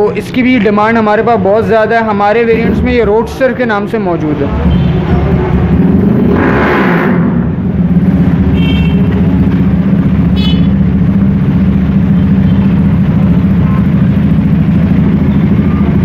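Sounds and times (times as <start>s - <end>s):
street traffic rumble: 0.0s - 16.0s
car horn toots: 8.5s - 9.3s, 10.3s - 10.8s.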